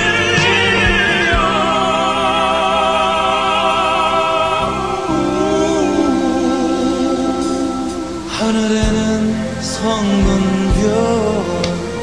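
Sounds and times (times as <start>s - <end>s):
slow background music: 0.0s - 12.0s.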